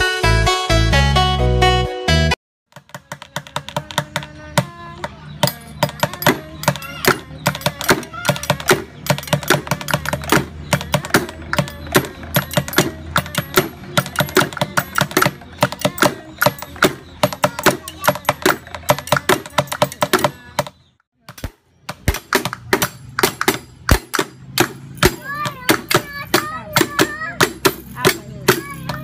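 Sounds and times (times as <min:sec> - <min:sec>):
objects tapped and struck: 0:02.7 - 0:29.0.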